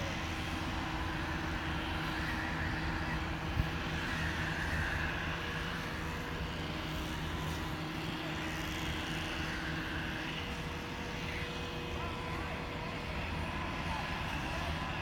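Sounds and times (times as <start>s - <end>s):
crane diesel engine running: 0.0s - 15.0s.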